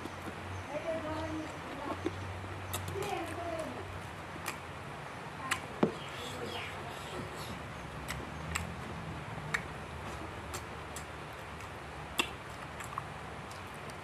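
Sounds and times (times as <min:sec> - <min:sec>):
chewing close to microphone: 0:01.4 - 0:04.7, 0:06.9 - 0:14.0.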